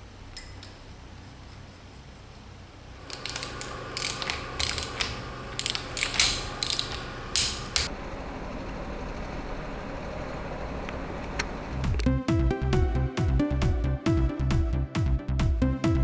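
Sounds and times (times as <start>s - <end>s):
steady low hum: 0.0s - 12.2s
torque wrench ratchet clicking: 3.0s - 7.9s.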